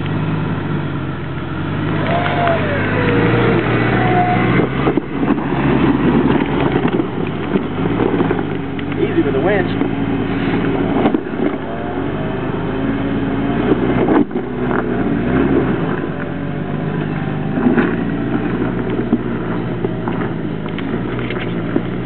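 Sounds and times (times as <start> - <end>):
engine revving under load: 0.0 - 22.0
tyres scrabbling over stones: 3.5 - 12.3, 13.6 - 22.0.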